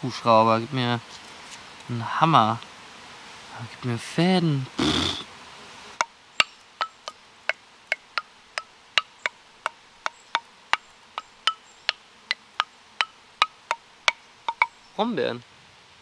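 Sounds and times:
wooden xylophone struck with stick: 0:06.0 - 0:12.0, 0:13.0 - 0:14.8.

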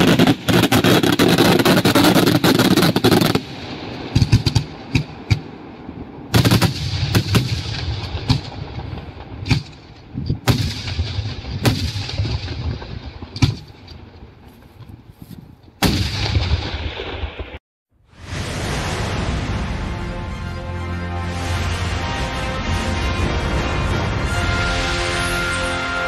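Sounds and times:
fireworks bursting with bangs: 0:00.0 - 0:05.7, 0:06.3 - 0:14.2.

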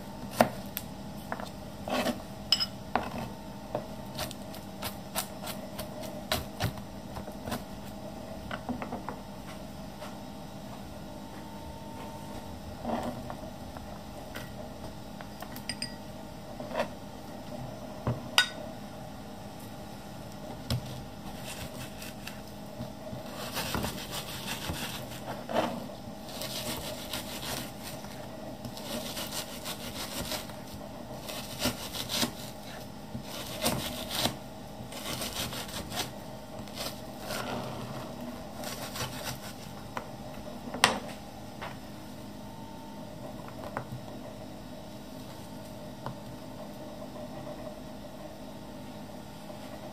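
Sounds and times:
knife sawing through meat: 0:21.3 - 0:22.4, 0:23.2 - 0:25.4, 0:26.3 - 0:28.1, 0:28.8 - 0:30.6, 0:31.2 - 0:37.8, 0:38.6 - 0:39.6.

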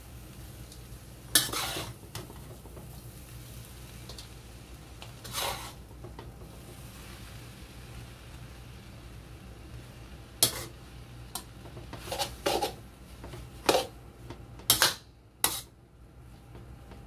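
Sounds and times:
spatula clacking against a wok: 0:13.6 - 0:15.7.

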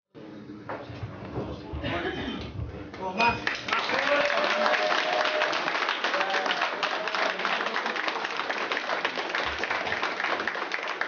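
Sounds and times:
crowd applauding: 0:03.3 - 0:11.0.

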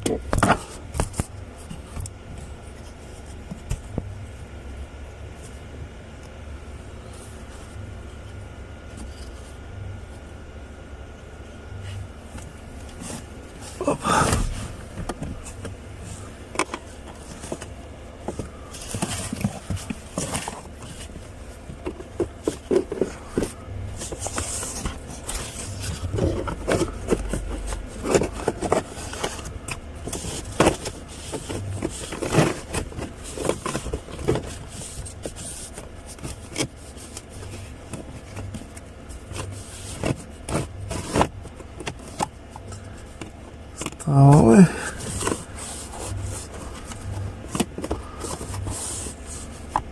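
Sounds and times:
plastic scraping and clicking: 0:16.5 - 0:44.0.

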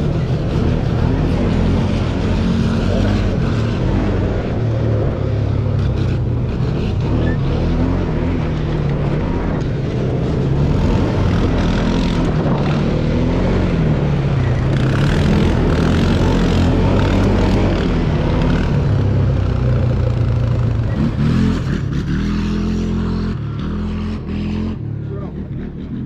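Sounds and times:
atv engine revving: 0:00.0 - 0:26.0
tires on loose gravel: 0:00.0 - 0:26.0.

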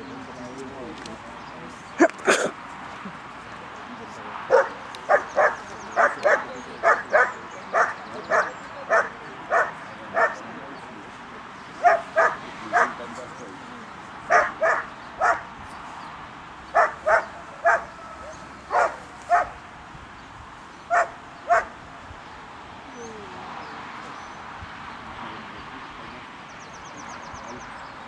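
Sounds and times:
dog barking: 0:04.5 - 0:10.4, 0:11.8 - 0:13.0, 0:14.3 - 0:15.4, 0:16.8 - 0:19.6, 0:20.9 - 0:21.8.

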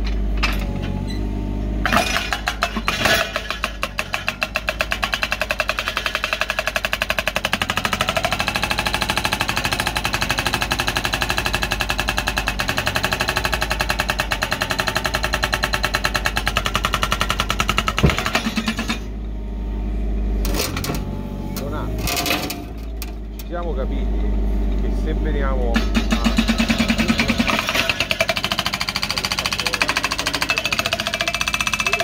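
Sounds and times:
hydraulic breaker hammering rock: 0:01.8 - 0:19.1, 0:25.6 - 0:32.0.

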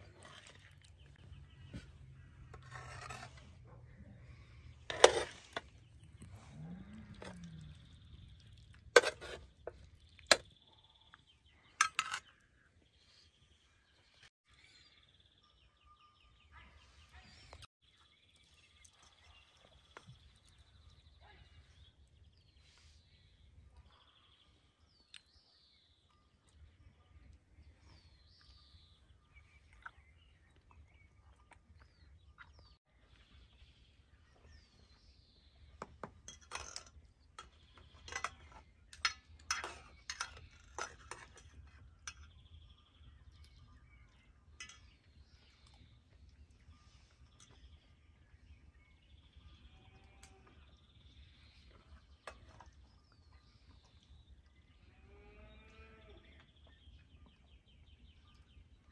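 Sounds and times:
birds chirping: 0:00.0 - 0:58.9
cutlery clinking on metal plates: 0:09.0 - 0:09.4, 0:11.8 - 0:12.3, 0:36.1 - 0:42.3.

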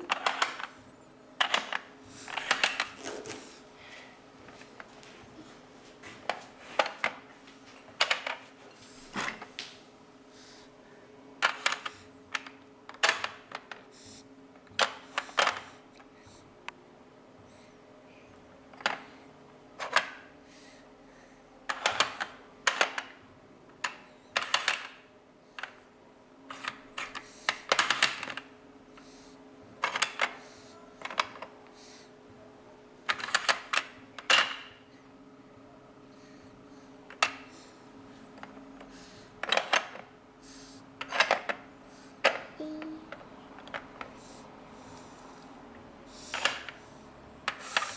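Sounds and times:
plastic puzzle pieces clacking: 0:00.0 - 0:00.7
faint steady hum: 0:00.0 - 0:47.9.

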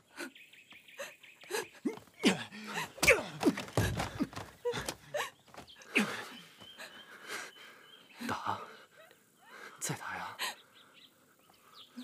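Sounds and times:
men grunting and gasping: 0:01.4 - 0:07.6
punch thuds: 0:03.0 - 0:05.7.

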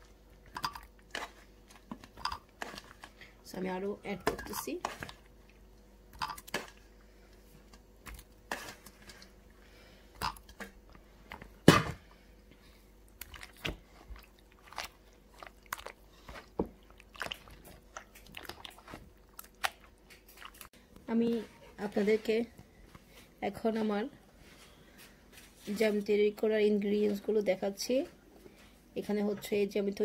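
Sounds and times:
wet squelches of mashed strawberries: 0:00.0 - 0:11.6, 0:12.5 - 0:22.4.

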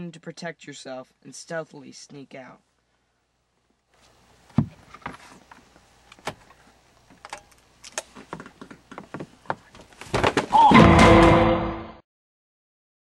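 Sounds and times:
clothes rustling: 0:04.0 - 0:06.8, 0:08.0 - 0:10.6.

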